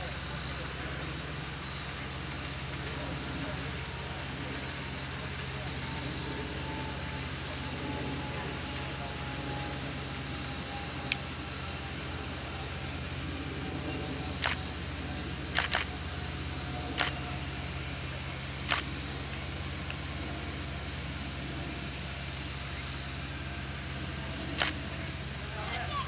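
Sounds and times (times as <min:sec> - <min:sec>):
distant harvester engine running: 0:00.0 - 0:26.0
insects droning: 0:00.0 - 0:26.0
sharp clicks: 0:14.4 - 0:14.8, 0:15.5 - 0:16.0, 0:16.9 - 0:17.3, 0:18.6 - 0:19.2, 0:24.6 - 0:24.8.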